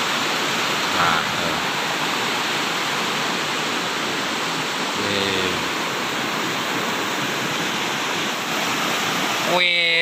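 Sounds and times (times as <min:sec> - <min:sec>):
river rushing over rocks: 0:00.0 - 0:10.0.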